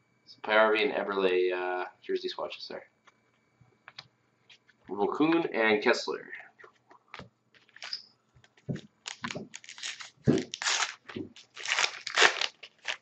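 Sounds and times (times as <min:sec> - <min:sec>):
foil wrapper tearing and crinkling: 0:09.0 - 0:13.0.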